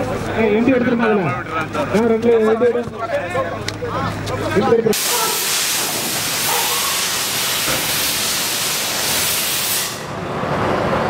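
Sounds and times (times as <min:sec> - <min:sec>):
loud hiss of rushing air: 0:05.0 - 0:10.2.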